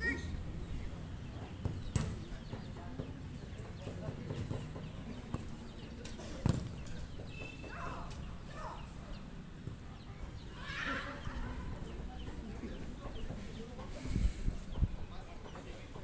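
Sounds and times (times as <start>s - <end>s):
faint shouts of players: 0.0s - 0.4s
ball kicked thuds: 1.6s - 2.3s, 6.4s - 6.8s.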